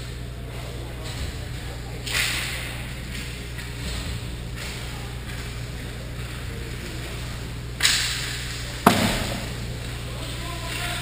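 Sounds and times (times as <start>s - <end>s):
arena hum: 2.8s - 10.7s
sharp knock: 8.9s - 9.6s.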